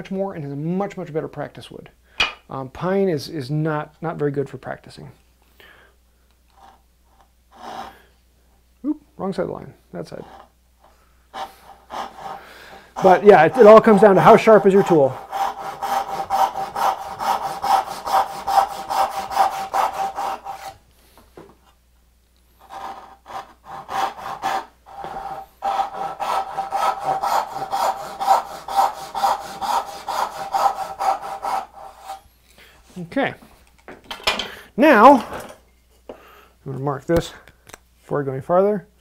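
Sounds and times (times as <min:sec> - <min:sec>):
handsaw cutting wood: 0:07.5 - 0:07.9, 0:11.3 - 0:20.8, 0:22.6 - 0:32.2.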